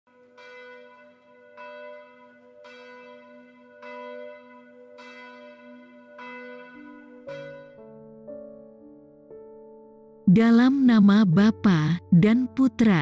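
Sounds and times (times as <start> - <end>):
church bell tolling: 0.1 - 8.5.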